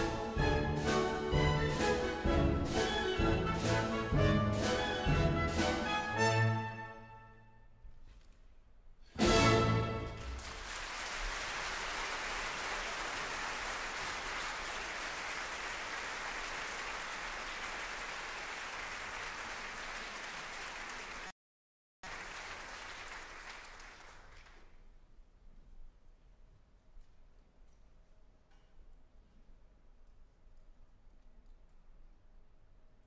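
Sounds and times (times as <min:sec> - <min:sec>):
audience applauding: 0:10.0 - 0:21.3, 0:22.0 - 0:24.8.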